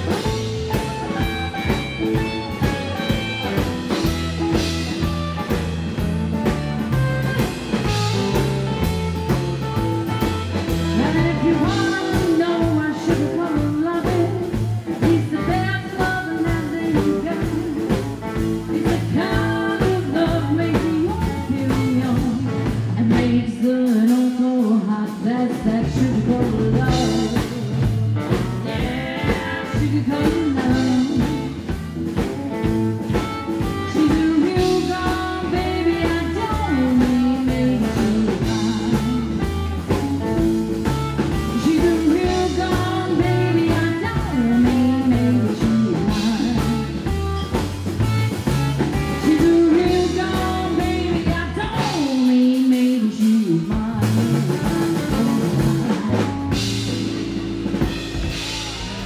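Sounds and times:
upright double bass: 0.0 - 23.5, 25.5 - 52.1, 53.7 - 59.0
drums: 0.0 - 59.0
electric guitar: 0.0 - 59.0
woman singing: 7.8 - 57.0
acoustic guitar: 25.5 - 59.0.

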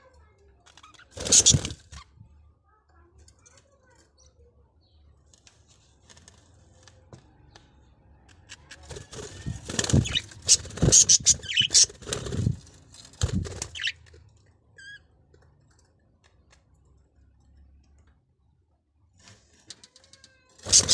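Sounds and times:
bird wings flapping: 1.2 - 1.8, 8.9 - 13.9, 20.7 - 20.9.

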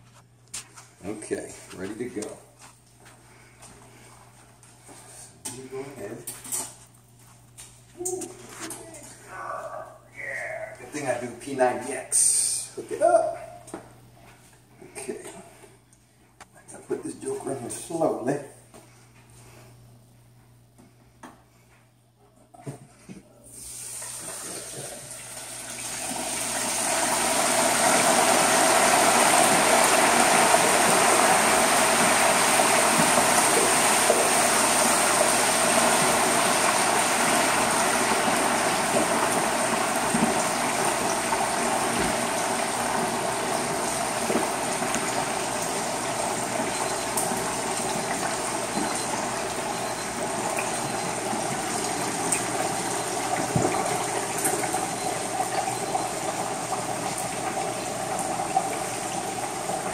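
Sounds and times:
hot oil bubbling and sizzling: 23.5 - 59.9.

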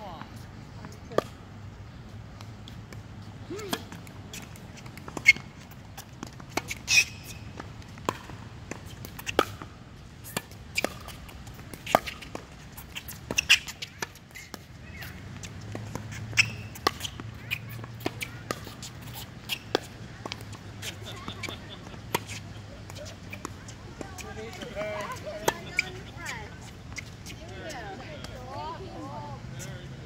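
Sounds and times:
tennis ball bouncing: 0.8 - 1.4, 2.4 - 29.0
sneaker squeaks: 3.5 - 9.6, 10.2 - 28.7
racket striking tennis ball: 3.5 - 26.1.

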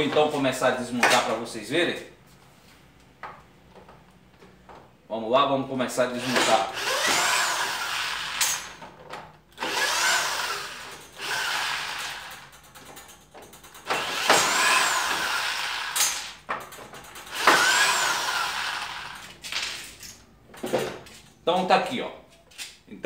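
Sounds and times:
electric drill backing out screws: 6.2 - 13.1, 13.7 - 19.5.

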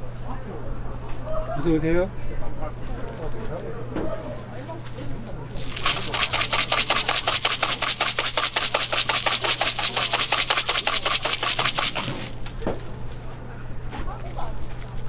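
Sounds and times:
steady low hum: 5.3 - 13.9
chocolate chips rattling in shaker: 5.5 - 12.6.

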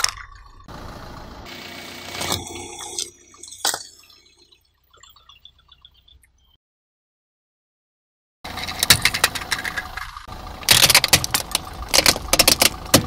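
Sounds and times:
car engine idling: 0.4 - 2.2, 8.5 - 13.0.

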